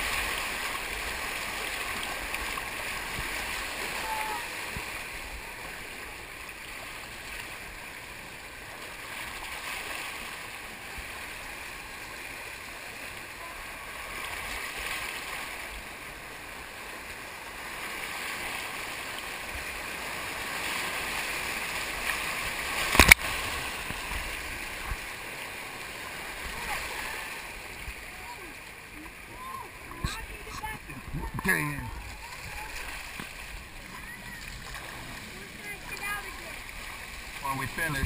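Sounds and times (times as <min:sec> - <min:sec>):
rushing churning water: 0:00.0 - 0:38.0
sharp knock or splash: 0:22.8 - 0:23.4.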